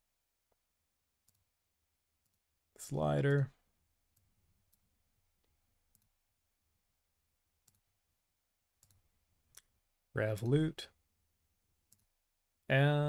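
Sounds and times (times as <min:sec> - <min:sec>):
faint computer mouse clicks: 0:08.8 - 0:09.7.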